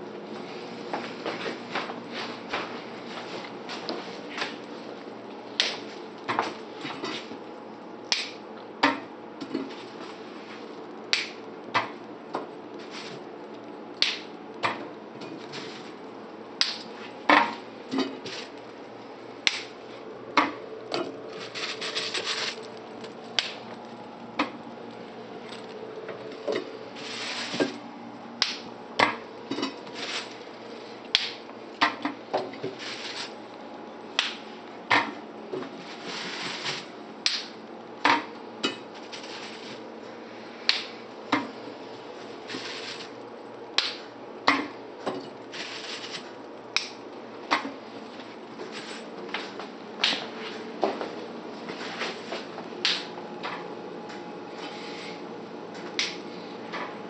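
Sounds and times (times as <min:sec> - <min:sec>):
asparagus snapping: 0:11.1 - 0:11.4, 0:19.4 - 0:19.7.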